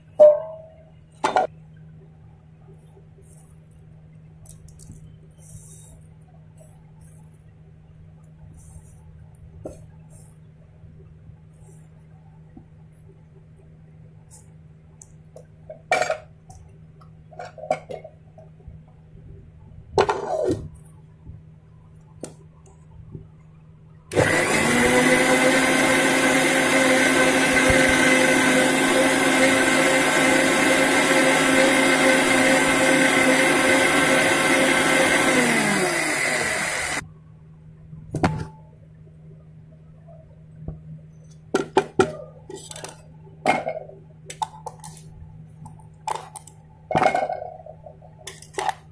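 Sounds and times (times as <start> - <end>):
mixer grinder motor running: 24.1 - 37.0.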